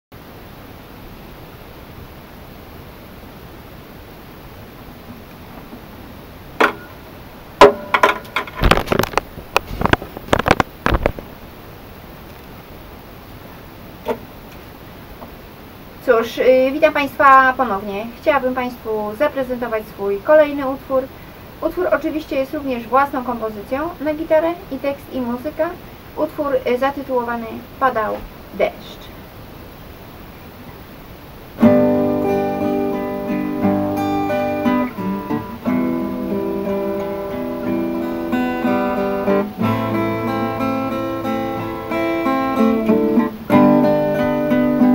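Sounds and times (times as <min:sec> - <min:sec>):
guitar handling knocks: 0:06.6 - 0:07.0, 0:07.6 - 0:11.3, 0:14.0 - 0:14.6
acoustic guitar strumming chords: 0:06.6 - 0:09.0, 0:31.6 - 0:44.9.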